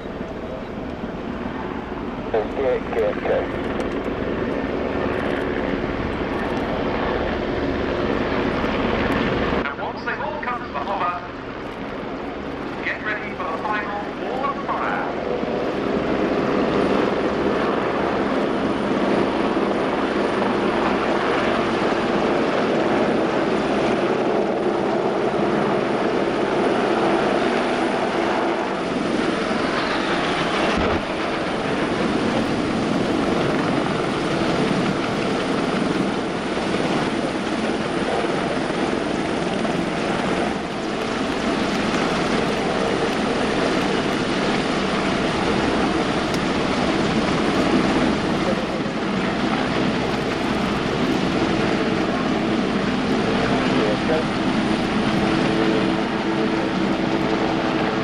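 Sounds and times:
helicopters flying past: 0:00.0 - 0:58.0.

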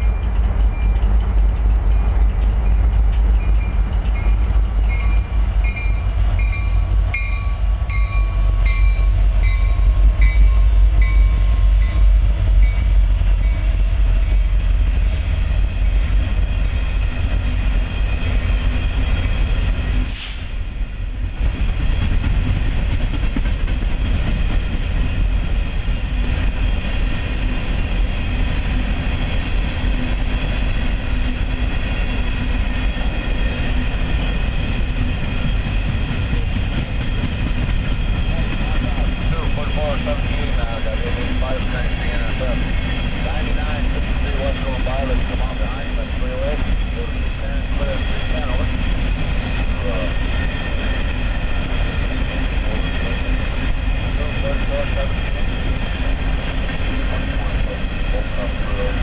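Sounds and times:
wheels clicking over rail joints: 0:00.0 - 0:12.0
diesel locomotives rumbling: 0:00.0 - 0:59.0
bell ringing: 0:01.9 - 0:13.8.

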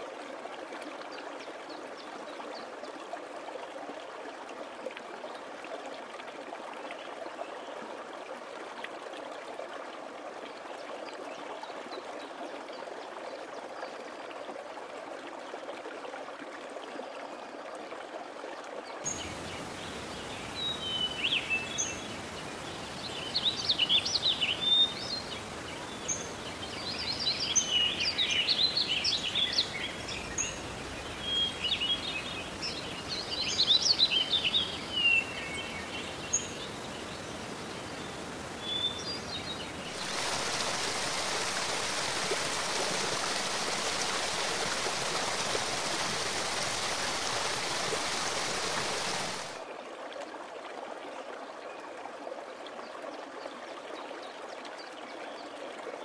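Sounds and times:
background hiss: 0:19.1 - 0:49.6
stream rushing: 0:19.1 - 0:49.7.

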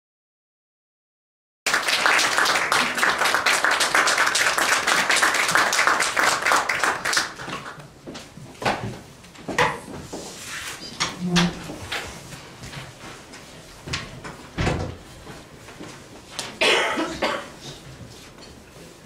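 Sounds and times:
audience applauding: 0:01.7 - 0:07.8.

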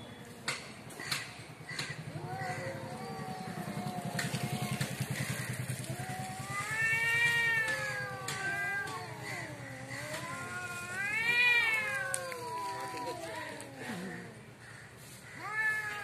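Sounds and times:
cats yowling: 0:02.0 - 0:14.4, 0:15.3 - 0:16.0.

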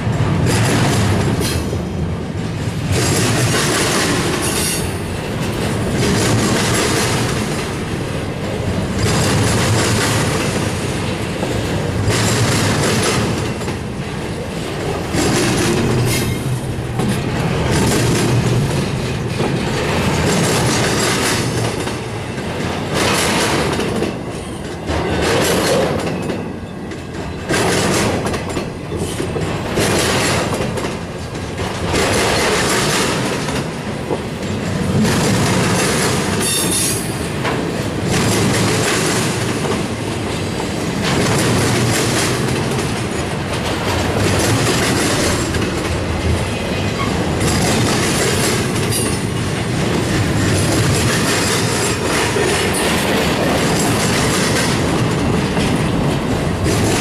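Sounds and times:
freight train wheels rumbling: 0:00.0 - 0:57.0
wheels clacking over rail joints: 0:00.0 - 0:57.0
wheels squealing on rail: 0:04.4 - 0:05.2, 0:36.4 - 0:37.3.

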